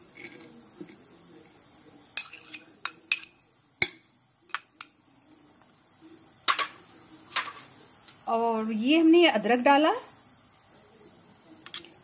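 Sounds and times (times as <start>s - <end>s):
steel spoon clinking against bowls: 2.2s - 5.0s, 11.7s - 12.0s.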